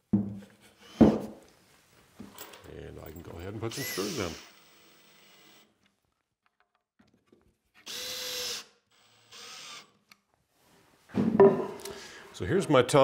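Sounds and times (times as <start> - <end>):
knocking and handling noise: 0.0 - 1.5, 11.1 - 11.9
cordless drill driving screws: 0.8 - 1.2, 3.6 - 5.7, 7.8 - 10.0.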